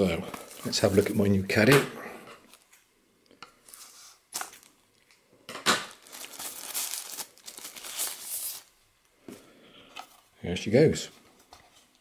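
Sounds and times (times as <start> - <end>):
plastic bag crinkling: 0.4 - 1.5, 5.8 - 8.7.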